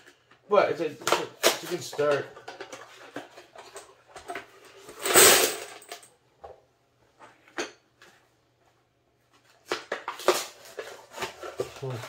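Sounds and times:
cartridges clattering into metal can: 0:04.9 - 0:06.0.

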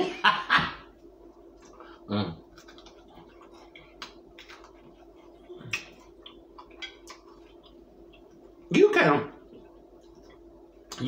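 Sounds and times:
person chewing: 0:01.4 - 0:08.6.

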